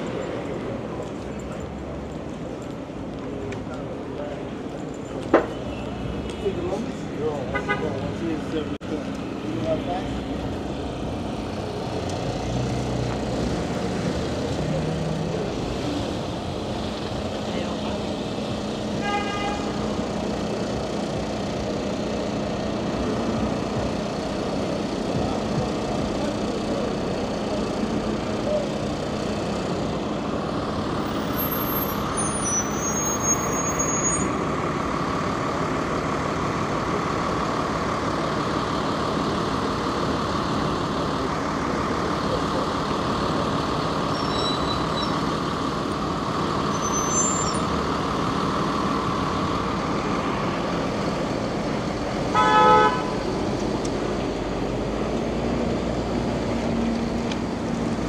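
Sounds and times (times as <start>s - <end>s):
traffic rumble: 0.0s - 58.0s
faint high squeals: 31.4s - 34.3s, 44.1s - 45.2s, 46.7s - 47.7s.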